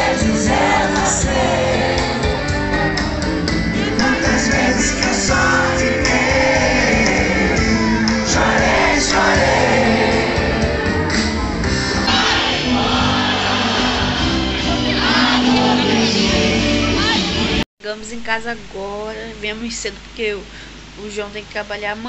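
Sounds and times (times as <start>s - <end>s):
crowd noise: 0.0s - 17.6s
live band with male singer: 0.0s - 17.6s.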